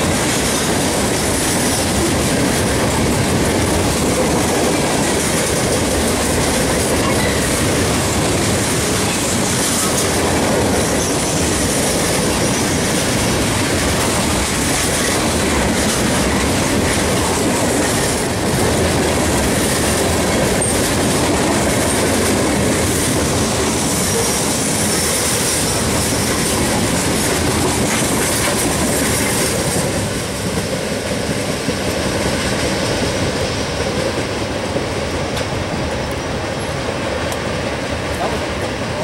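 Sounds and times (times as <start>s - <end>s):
train wheels on rail: 0.0s - 39.0s.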